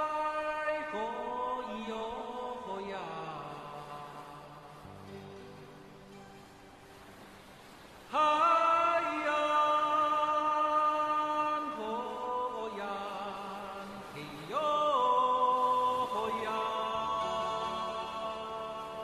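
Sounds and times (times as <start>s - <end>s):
vocal chant with long held notes: 0.0s - 6.6s, 7.6s - 19.0s.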